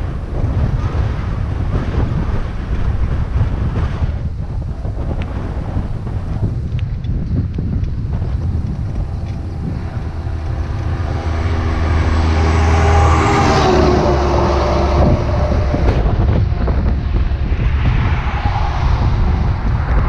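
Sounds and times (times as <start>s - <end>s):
wind rumble on microphone: 0.0s - 20.0s
motor vehicle passing: 7.9s - 19.8s.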